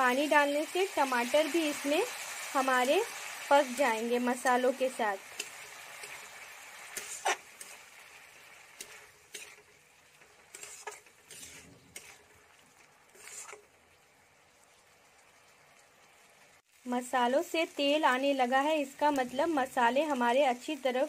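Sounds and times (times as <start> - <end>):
faint sizzle of frying: 0.0 - 21.0
metal spatula scraping a pan: 5.2 - 13.9.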